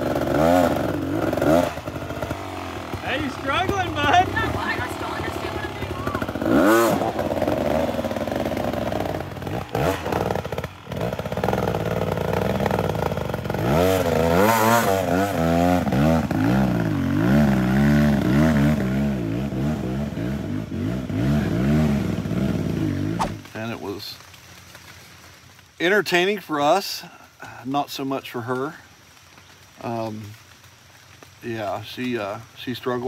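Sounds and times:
dirt bike engine revving: 0.0 - 23.5.

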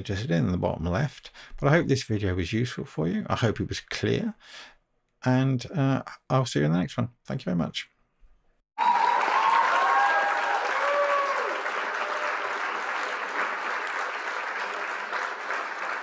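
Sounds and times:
crowd applauding: 8.8 - 16.0
crowd cheering: 8.8 - 16.0.

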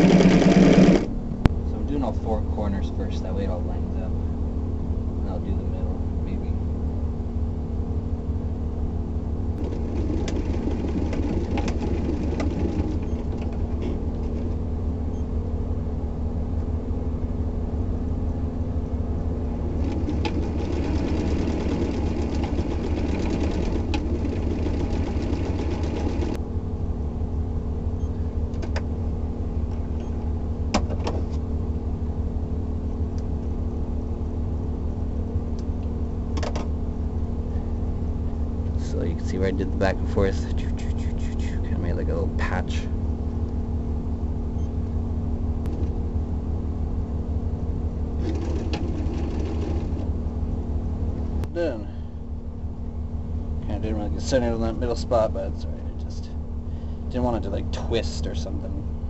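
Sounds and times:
sewing machine stitching: 0.0 - 1.1, 9.6 - 14.5, 19.6 - 26.4, 48.2 - 50.0
steady low hum: 0.0 - 59.0.

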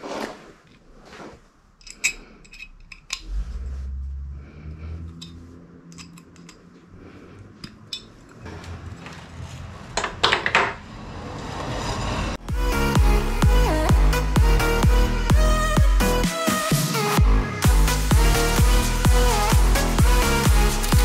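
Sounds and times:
metallic clicks of steel studs: 1.8 - 3.2, 5.1 - 6.7, 7.6 - 8.4
low hum: 1.8 - 15.2.

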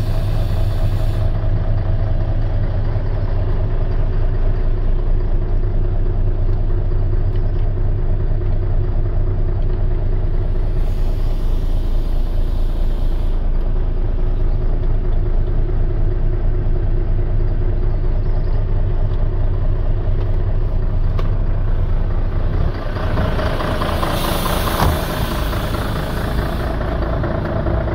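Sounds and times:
hiss: 0.0 - 1.4, 10.5 - 13.5, 23.3 - 27.2
diesel truck engine idling: 0.0 - 27.9.

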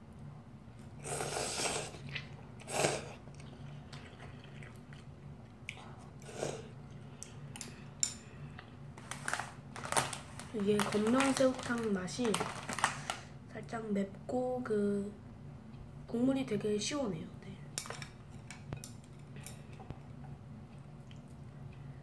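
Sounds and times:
boy slurping noodles: 1.0 - 4.8, 6.2 - 6.8
chewing: 1.6 - 7.4, 19.4 - 21.9.

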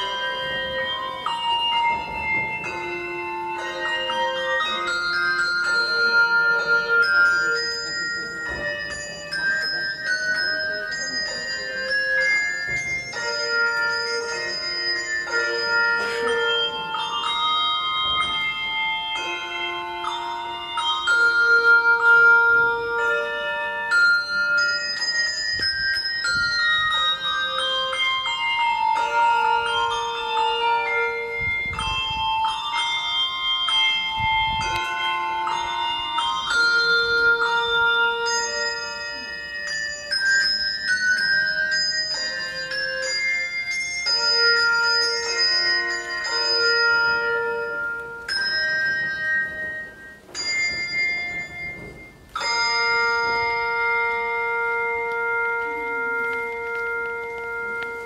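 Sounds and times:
carillon bells playing melody: 0.0 - 58.0.

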